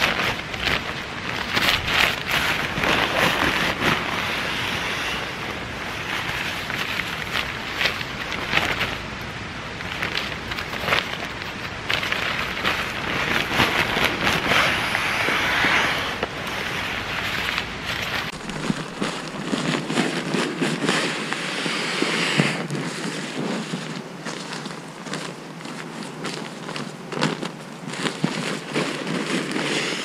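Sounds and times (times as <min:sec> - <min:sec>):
nylon fabric rustling: 0:00.0 - 0:30.0
rushing air: 0:00.0 - 0:30.0.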